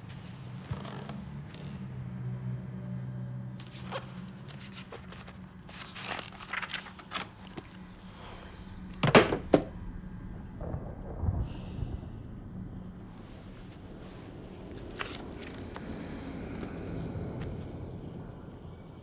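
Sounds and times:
low steady hum: 0.0 - 19.0
paper pages rustling: 3.6 - 7.9, 14.7 - 15.8.

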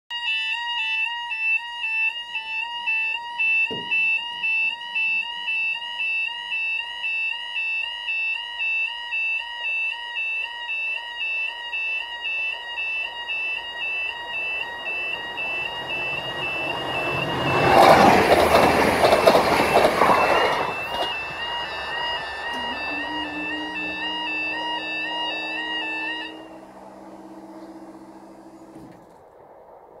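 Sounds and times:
two-tone electronic alarm: 0.1 - 29.0
barrier mechanism hum: 20.7 - 29.6.

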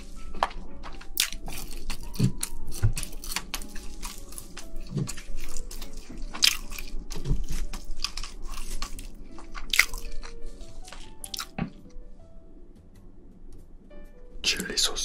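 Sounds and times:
faint background music: 0.0 - 15.0
shrimp shell cracking: 1.0 - 11.6.

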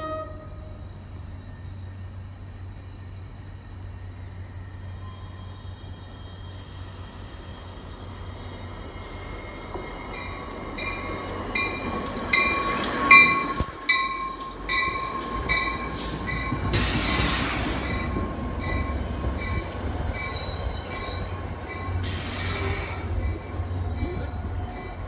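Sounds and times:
train wheels squealing: 0.0 - 25.0
train bell ringing: 9.0 - 25.0
burst of hiss: 15.9 - 18.2, 22.0 - 23.3.

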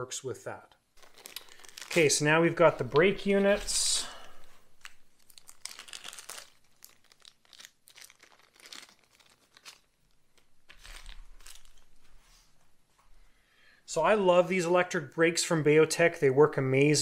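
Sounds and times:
plastic bag crinkling: 1.0 - 12.6.

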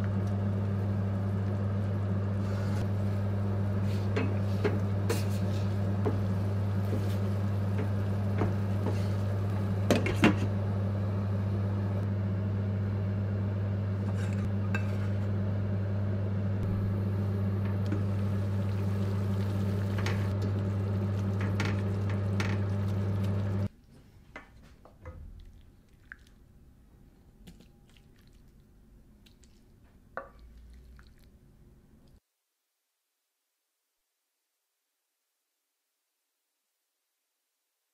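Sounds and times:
stew simmering: 0.0 - 10.7, 16.6 - 32.2
steady low hum: 0.0 - 23.7
wooden spoon scraping a metal pan: 3.8 - 6.2.

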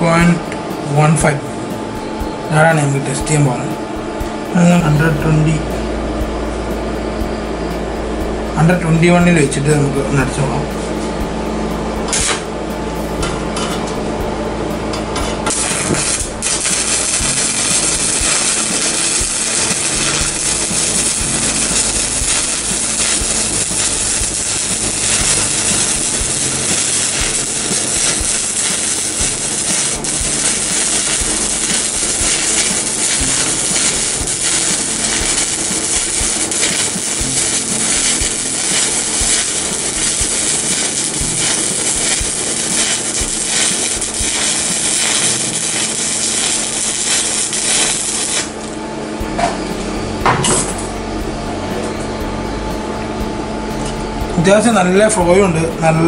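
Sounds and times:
welding arc crackling: 12.0 - 12.5, 15.0 - 49.8.

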